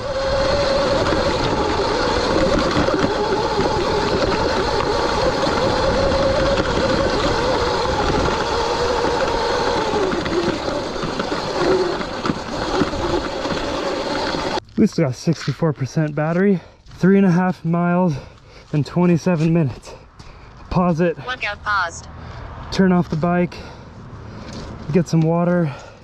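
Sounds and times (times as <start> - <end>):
electric motor whine: 0.0 - 14.6
tyre and riding noise: 0.0 - 17.5, 22.9 - 26.0.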